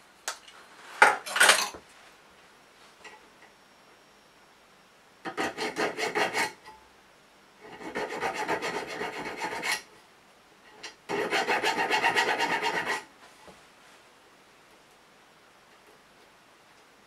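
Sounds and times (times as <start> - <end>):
file rasping on steel: 5.3 - 6.6, 7.6 - 9.9, 11.1 - 13.1.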